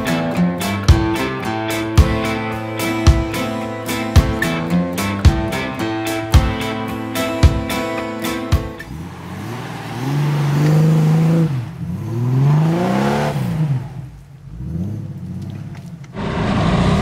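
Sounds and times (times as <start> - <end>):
guitar music: 0.0 - 9.0
engine revving: 8.3 - 17.0.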